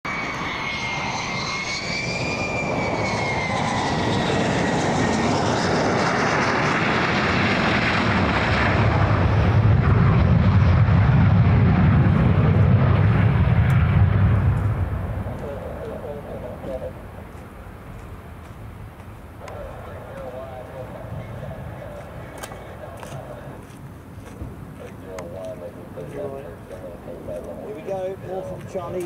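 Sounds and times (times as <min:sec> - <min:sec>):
jet engine whine: 0:00.0 - 0:29.0
jet engine deep rumble: 0:00.1 - 0:29.0.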